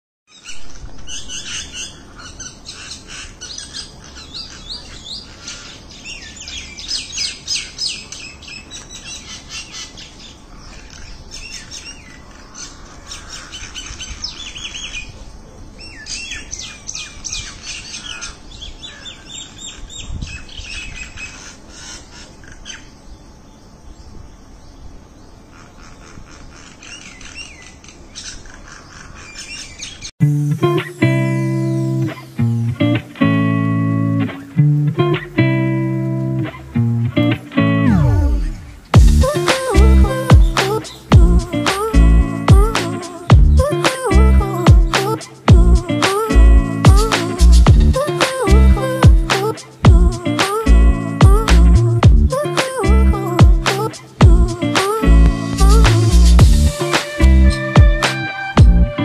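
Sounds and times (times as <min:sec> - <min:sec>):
mynas chattering: 0:36.5 - 0:58.2.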